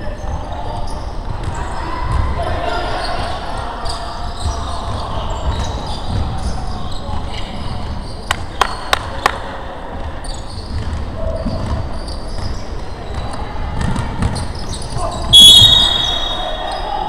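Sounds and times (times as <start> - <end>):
players running in echoing gym: 0.0 - 17.0
loud high-pitched sound: 15.3 - 16.6.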